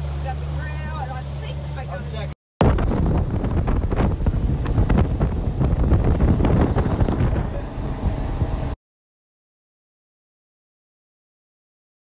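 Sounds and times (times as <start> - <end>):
wind buffeting microphone: 2.6 - 8.8.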